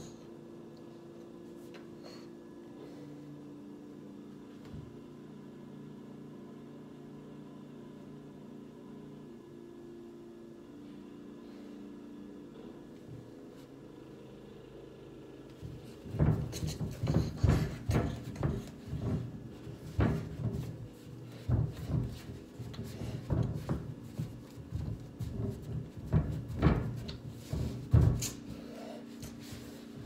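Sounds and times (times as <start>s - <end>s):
feet stomping on shelf board: 15.6s - 28.7s.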